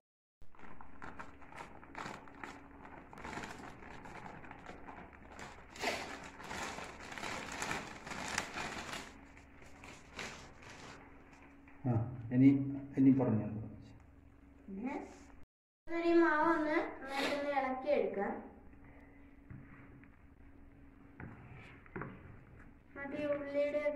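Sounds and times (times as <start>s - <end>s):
plastic bag crinkling: 0.5s - 11.2s.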